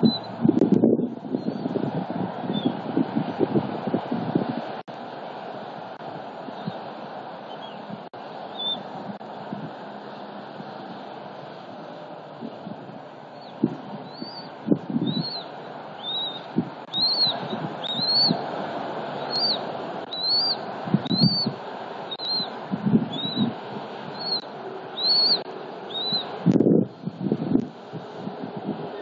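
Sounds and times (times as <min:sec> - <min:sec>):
eaglet peeping: 0:00.0 - 0:00.4, 0:02.5 - 0:03.4, 0:07.5 - 0:07.9, 0:08.5 - 0:08.9, 0:13.3 - 0:18.5, 0:19.2 - 0:26.4
road traffic hum: 0:00.0 - 0:29.0.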